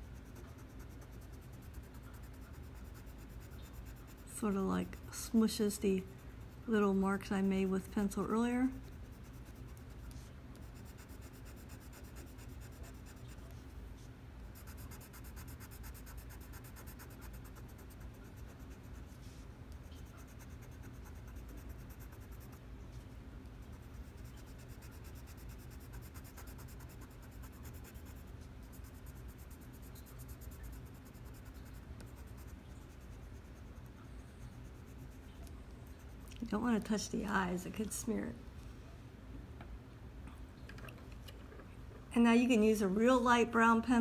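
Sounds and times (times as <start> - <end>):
pencil scratching on paper: 0.0 - 13.6, 14.5 - 19.3, 19.9 - 22.6, 23.6 - 35.3.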